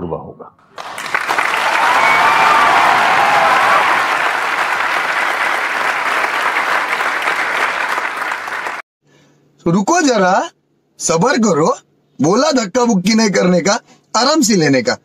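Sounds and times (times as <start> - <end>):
large audience clapping: 0.7 - 8.8
people cheering and laughing: 1.5 - 5.1.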